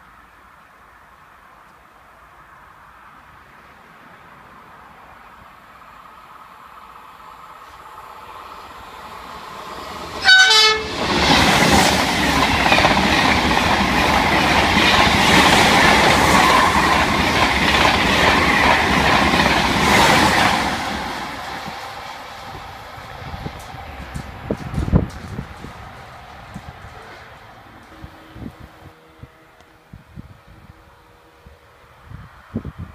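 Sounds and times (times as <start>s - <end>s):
train passing at speed: 0.1s - 32.9s
train horn blast: 10.2s - 11.0s.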